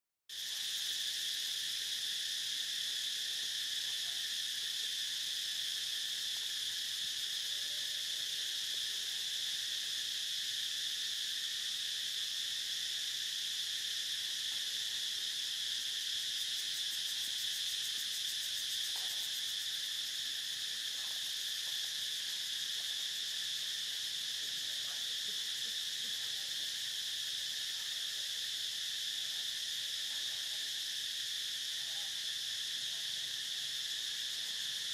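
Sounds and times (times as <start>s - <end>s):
insects shrill drone: 0.4s - 34.9s.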